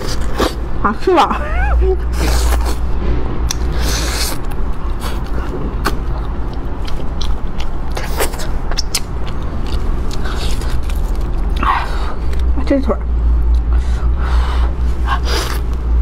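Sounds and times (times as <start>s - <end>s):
steady low hum: 0.0s - 16.0s
chewing with smacking clicks: 5.8s - 12.6s.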